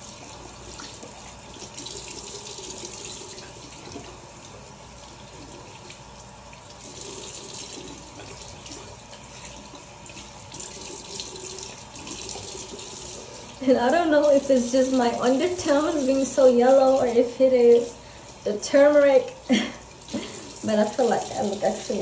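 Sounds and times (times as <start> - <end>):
face rinsing with water: 0.0 - 22.0.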